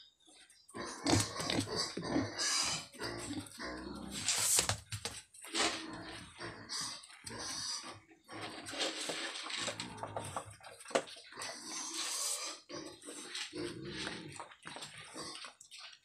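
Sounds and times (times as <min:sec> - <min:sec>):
pig snuffling and grunting: 0:00.7 - 0:16.0.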